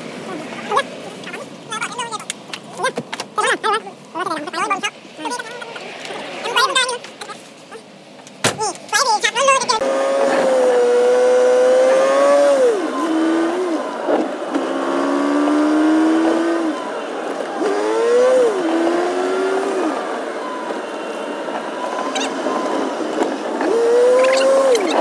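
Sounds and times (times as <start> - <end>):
vehicle engine revving: 9.8 - 25.0.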